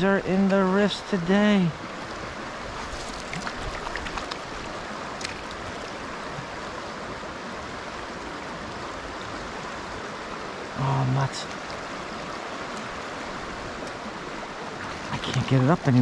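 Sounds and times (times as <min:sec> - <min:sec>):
river water rushing: 0:00.0 - 0:16.0
faint light ticks: 0:13.8 - 0:14.0.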